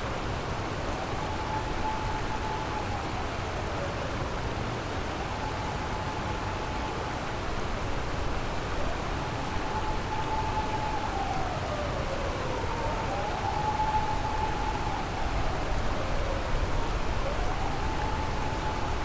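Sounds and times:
river water rushing: 0.0s - 19.0s
emergency siren wailing: 1.0s - 4.2s, 8.8s - 19.0s.

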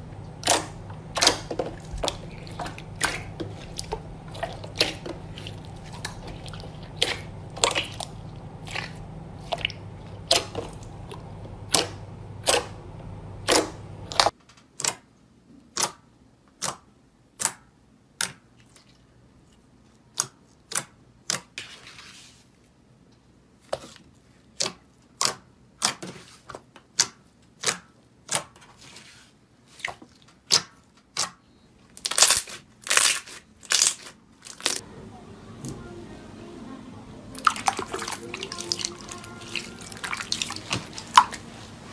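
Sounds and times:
low hum: 0.0s - 14.3s
slime popping and squelching: 0.4s - 12.7s.

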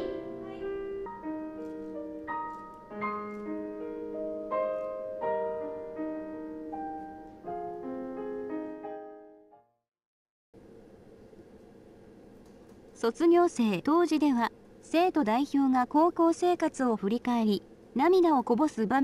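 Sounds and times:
slow piano music: 0.0s - 9.8s.

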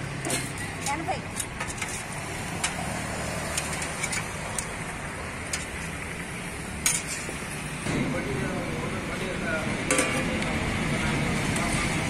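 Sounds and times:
roadside traffic: 0.0s - 12.0s
metal ladle clinking on pots: 6.8s - 7.4s.

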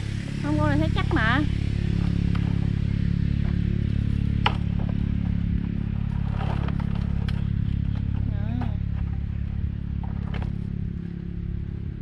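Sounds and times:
small engine running: 0.0s - 12.0s
light clatters: 3.4s - 10.8s.

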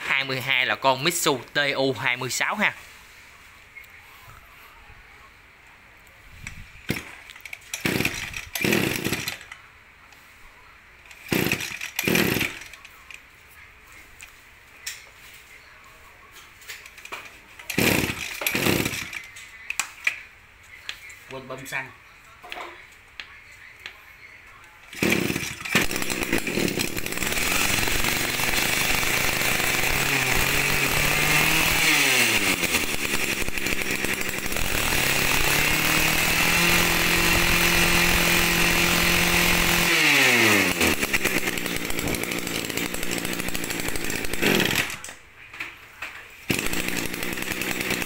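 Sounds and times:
brushcutter engine revving: 6.9s - 9.5s, 11.1s - 12.8s, 17.7s - 19.3s, 24.9s - 45.2s, 46.5s - 48.0s.

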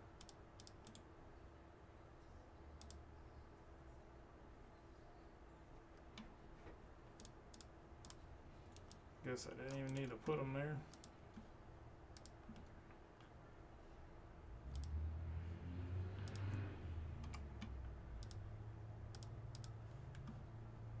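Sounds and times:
faint low hum: 0.0s - 21.0s
keyboard clicks: 0.1s - 1.1s, 2.8s - 3.0s, 7.2s - 9.0s, 9.6s - 11.5s, 12.1s - 13.3s, 14.7s - 15.0s, 16.2s - 16.6s, 17.2s - 18.4s, 19.1s - 20.4s
computer mouse clicks: 0.2s - 1.1s, 2.8s - 3.0s, 7.2s - 9.0s, 9.6s - 11.5s, 12.1s - 13.3s, 14.7s - 15.0s, 16.1s - 18.4s, 19.1s - 20.4s.

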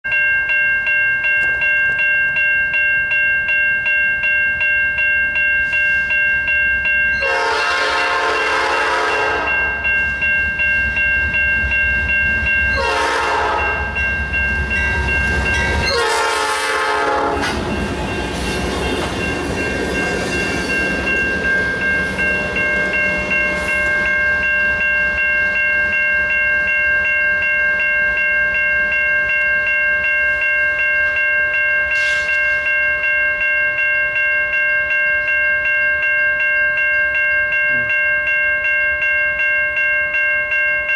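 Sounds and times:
steady pulsing ringing tone: 0.1s - 17.0s, 17.6s - 40.9s
locomotive air horn blasts: 7.2s - 9.5s, 12.8s - 13.9s, 15.9s - 17.5s
train cars rolling: 7.2s - 26.0s.

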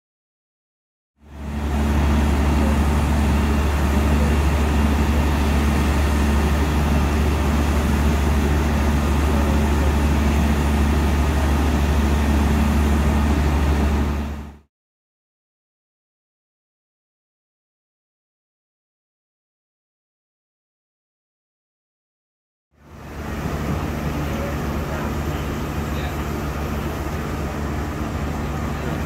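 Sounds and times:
water pump steady hiss: 1.2s - 14.6s, 22.8s - 29.0s
engine deep drone: 1.2s - 14.7s, 22.8s - 29.0s.

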